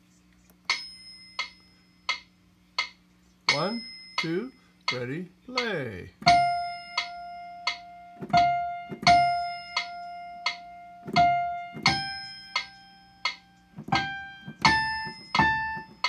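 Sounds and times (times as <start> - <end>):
piano melody: 6.2 - 16.0.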